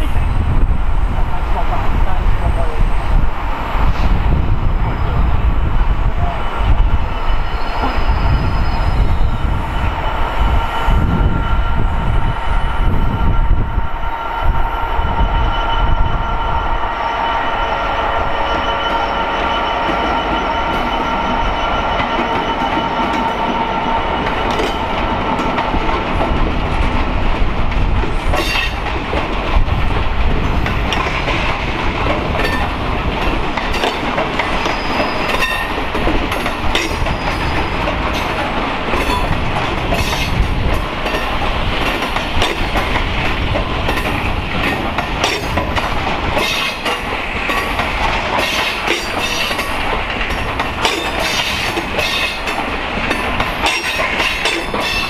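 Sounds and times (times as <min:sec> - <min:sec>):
wagon wheels squealing: 0:07.2 - 0:09.4, 0:34.6 - 0:35.8.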